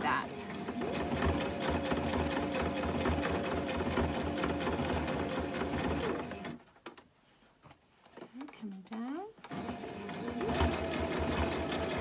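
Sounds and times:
sewing machine stitching: 0.0s - 6.6s, 9.4s - 12.0s.

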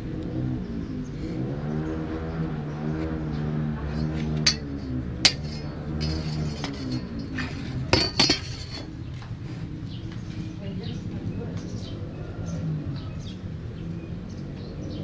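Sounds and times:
motor vehicle engine running: 0.0s - 15.0s
metallic clinks on wood: 3.9s - 8.9s.

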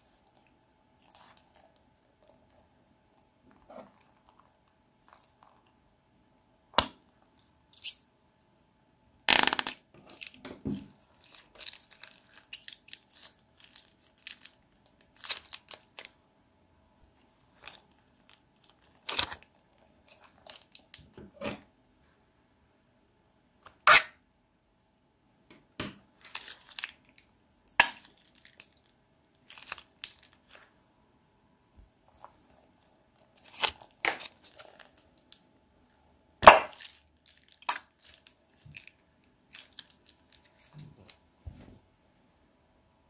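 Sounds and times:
plastic bags crinkling: 11.0s - 16.1s, 17.5s - 21.2s, 26.2s - 27.2s, 27.9s - 30.7s, 33.2s - 35.5s, 36.7s - 41.2s.

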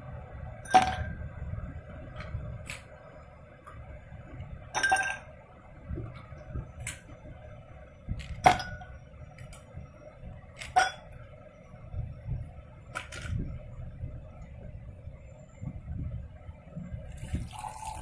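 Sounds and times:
ice cubes clinking in glass: 17.3s - 18.0s.

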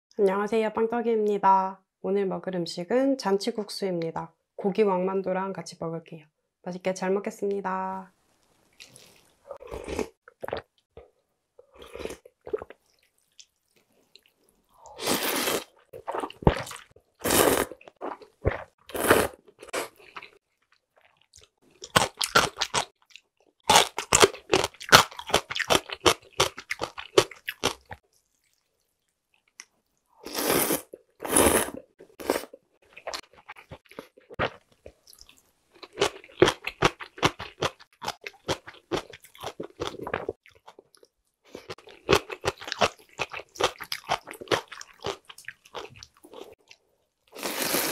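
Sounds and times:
slurping noodles: 14.8s - 17.9s, 18.8s - 20.0s, 30.2s - 32.6s, 47.3s - 47.9s.

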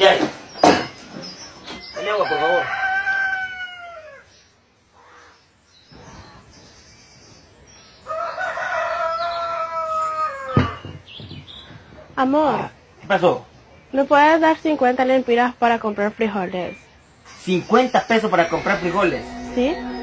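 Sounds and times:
rooster crowing: 2.0s - 4.3s, 8.0s - 10.8s.

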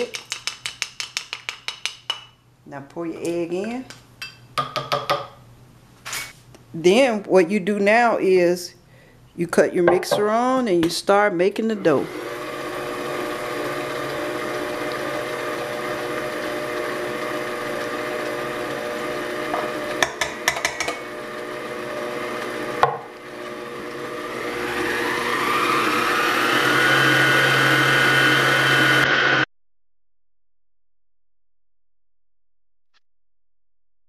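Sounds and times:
stand mixer motor whining: 12.0s - 29.5s
knock: 22.8s - 23.1s.

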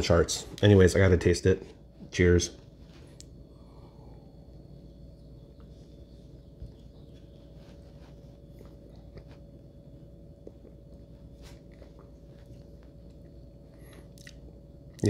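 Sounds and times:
steady low hum: 0.0s - 15.0s
lip smacks and tongue clicks: 13.8s - 15.0s.

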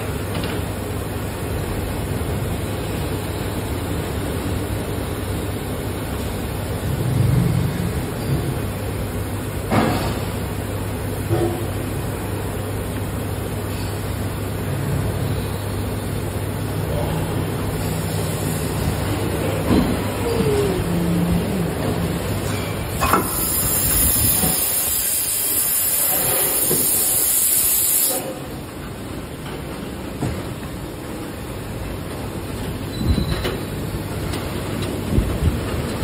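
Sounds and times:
machine humming: 18.6s - 25.8s
loud hiss: 23.0s - 28.3s.

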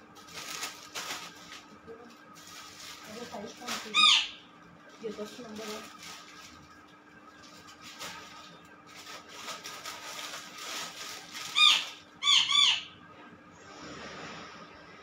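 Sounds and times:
plastic bag crinkling: 0.1s - 4.2s, 4.9s - 12.2s.

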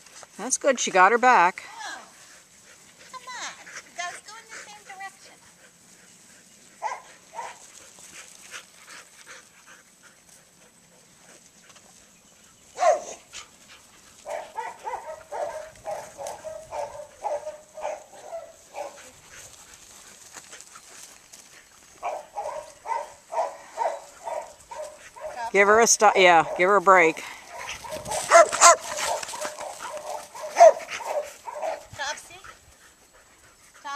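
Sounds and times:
dog barking: 6.8s - 7.6s, 12.8s - 13.2s, 14.2s - 19.1s, 22.0s - 25.5s, 26.4s - 26.7s, 27.5s - 31.9s.

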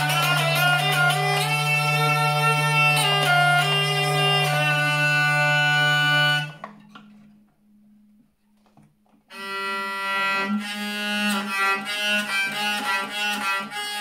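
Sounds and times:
hurdy-gurdy drone and melody: 0.0s - 7.2s, 9.3s - 14.0s.

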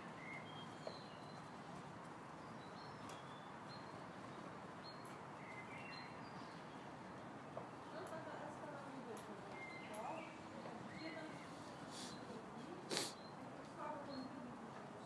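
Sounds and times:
small birds chirping: 0.0s - 15.0s.

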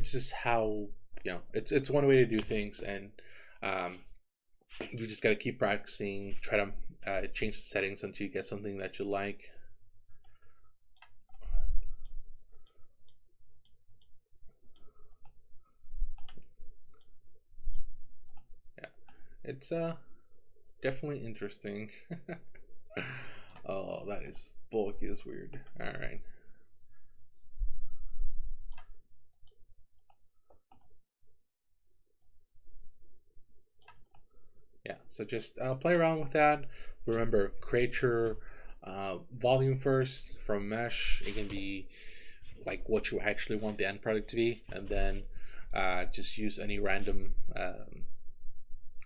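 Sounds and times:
computer mouse clicking: 16.1s - 19.2s, 28.7s - 29.6s, 33.8s - 34.2s.

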